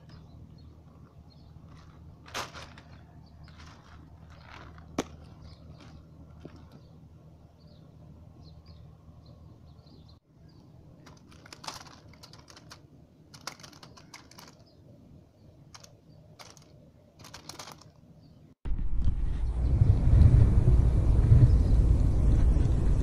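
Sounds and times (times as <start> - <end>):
plastic bag crinkling: 1.6 - 6.8, 11.0 - 14.6, 15.7 - 18.0
loud low rumble: 18.6 - 23.0.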